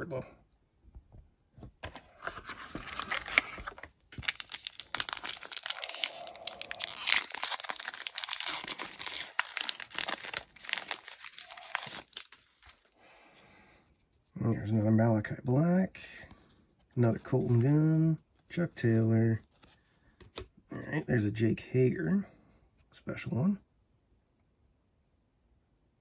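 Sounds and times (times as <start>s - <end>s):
foil wrapper crinkling and tearing: 2.4s - 12.9s.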